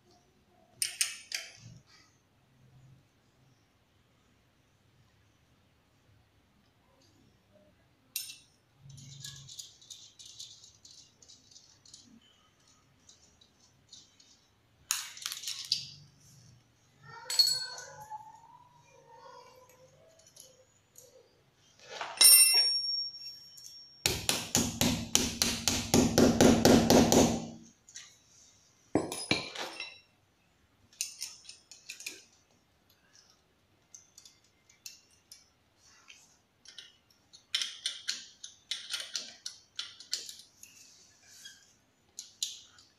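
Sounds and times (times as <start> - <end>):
metal clinks and rattles: 8.1 - 16.2, 17.1 - 18.3, 21.9 - 24.1, 29.0 - 30.1
sharp ringing metal clink: 17.3 - 18.0, 22.2 - 24.1.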